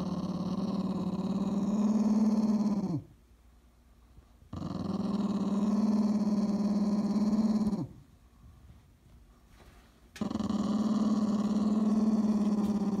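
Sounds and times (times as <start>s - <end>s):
puppy growling: 0.0s - 3.1s, 4.5s - 8.0s, 10.2s - 13.0s.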